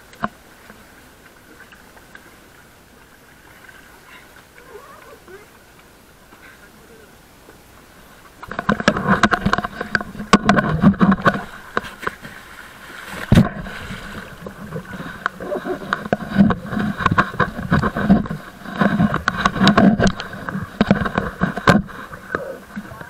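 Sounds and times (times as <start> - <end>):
water sloshing against boat hull: 7.4 - 23.0.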